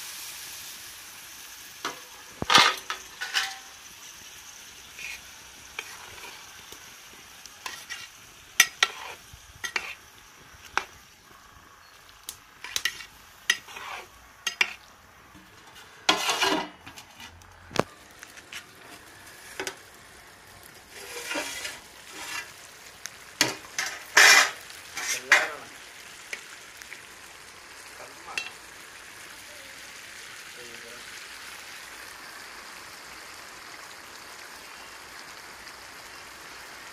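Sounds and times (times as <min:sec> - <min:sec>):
metal ladle scraping pot: 0:02.4 - 0:03.7, 0:07.6 - 0:10.0, 0:12.6 - 0:14.8, 0:15.4 - 0:17.4, 0:20.9 - 0:22.5, 0:23.4 - 0:25.5.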